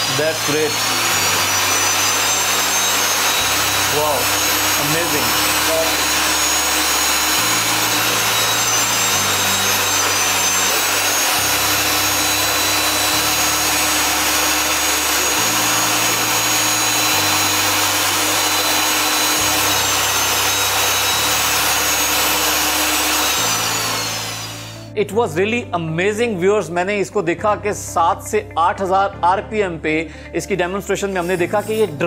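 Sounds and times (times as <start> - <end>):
jet engine high whine: 0.0 - 22.2.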